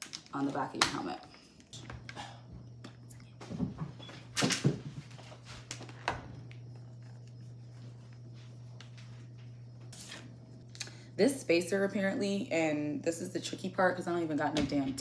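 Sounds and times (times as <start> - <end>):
low hum: 5.0 - 14.0.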